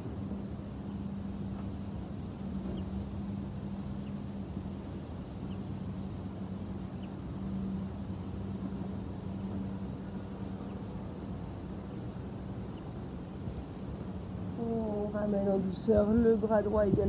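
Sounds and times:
low humming drone: 0.0s - 17.0s.

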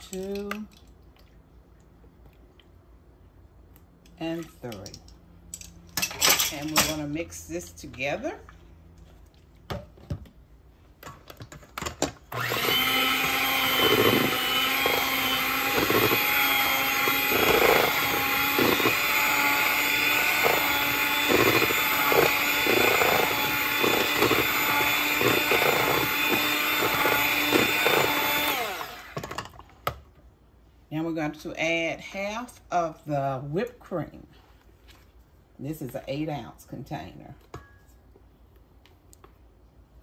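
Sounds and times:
electric hand mixer running: 12.3s - 29.2s.

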